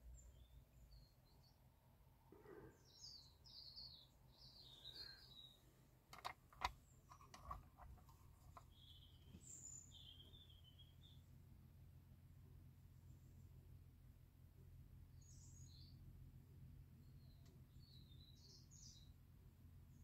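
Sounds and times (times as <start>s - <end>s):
faint bird chirps: 0.0s - 5.8s, 8.2s - 11.4s, 15.1s - 16.0s, 16.9s - 19.2s.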